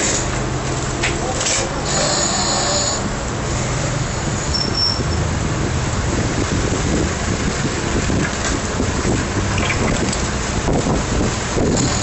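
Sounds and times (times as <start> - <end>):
traffic rumble: 0.0 - 12.0
wind buffeting microphone: 5.2 - 12.0.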